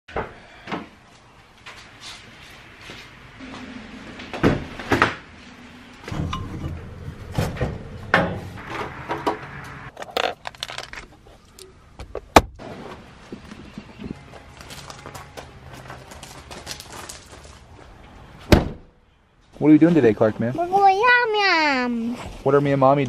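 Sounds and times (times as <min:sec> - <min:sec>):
objects clicking and rattling: 0:09.9 - 0:11.7.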